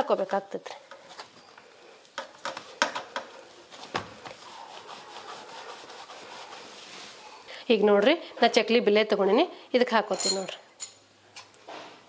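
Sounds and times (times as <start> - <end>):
hands rubbing dough: 1.1 - 7.5.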